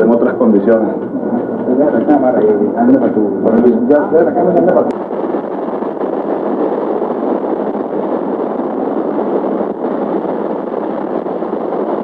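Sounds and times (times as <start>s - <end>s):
people talking: 0.0s - 5.0s.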